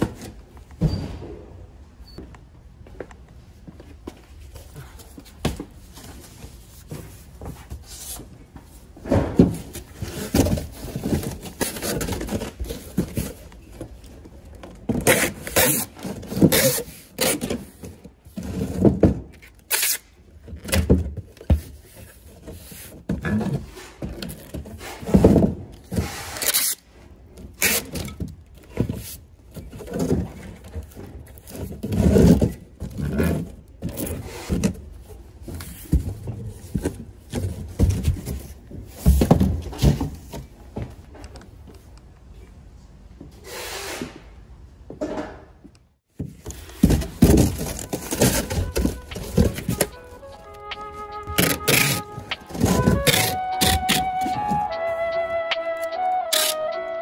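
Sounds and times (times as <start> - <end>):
cardboard boxes being handled: 4.3 - 19.5, 28.5 - 41.0, 46.1 - 54.9.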